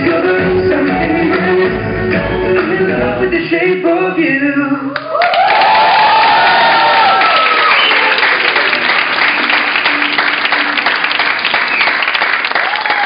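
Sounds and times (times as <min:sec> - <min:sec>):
high shouts: 0:05.0 - 0:08.3, 0:12.6 - 0:13.0
audience clapping and cheering: 0:05.0 - 0:13.0.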